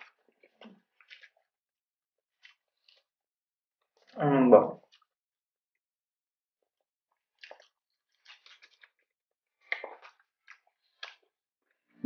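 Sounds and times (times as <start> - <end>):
chewing crispy fried food: 0.0 - 1.6, 2.3 - 3.2, 3.8 - 4.2, 7.1 - 11.9.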